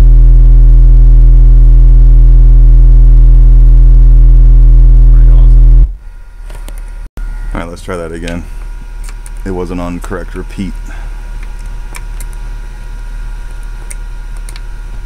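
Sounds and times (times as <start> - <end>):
subwoofer playing low test tone: 0.0 - 6.4.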